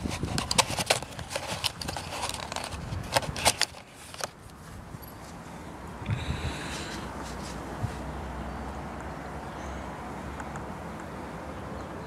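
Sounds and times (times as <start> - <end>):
phone clicking and scraping in box: 0.0 - 4.6.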